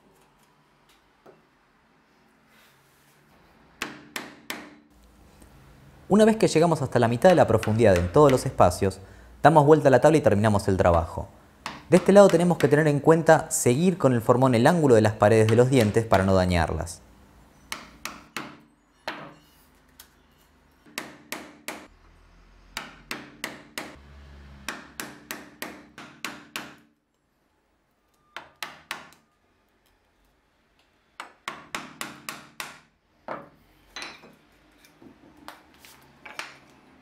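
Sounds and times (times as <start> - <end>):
mallet striking wood chisel: 3.8 - 4.9, 7.2 - 8.6, 10.8 - 12.8, 15.4 - 16.3, 17.7 - 19.4, 20.9 - 21.9, 22.8 - 24.0, 24.7 - 26.9, 28.4 - 29.2, 31.2 - 32.9.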